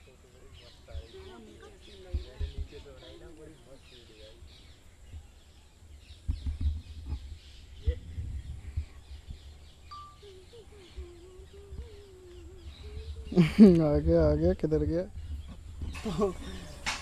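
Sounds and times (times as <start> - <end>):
small birds chirping: 0.0 - 17.0
microphone handling thumps: 2.0 - 3.0, 6.1 - 9.8, 10.8 - 17.0.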